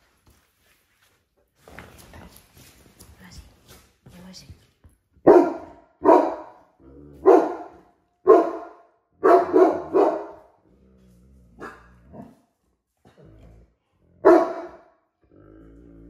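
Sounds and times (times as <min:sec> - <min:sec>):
dog barking deeply: 0:05.2 - 0:10.5, 0:14.2 - 0:14.8.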